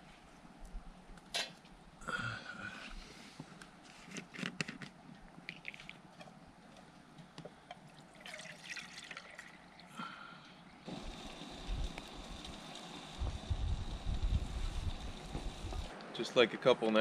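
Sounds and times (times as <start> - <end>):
water dripping and trickling: 7.9 - 9.9.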